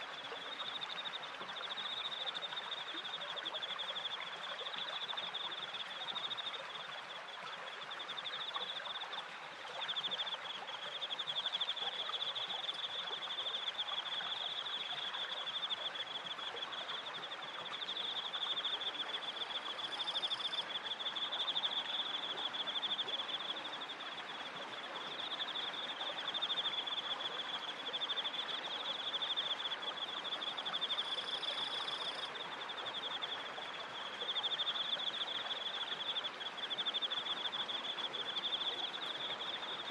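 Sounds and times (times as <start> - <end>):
crickets trilling: 11.1 - 39.9.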